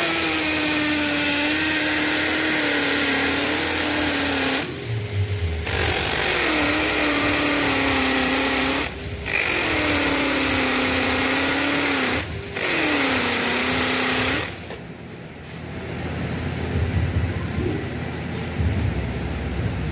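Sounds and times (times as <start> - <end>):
cordless drill boring into concrete: 0.0 - 4.8, 5.6 - 14.8.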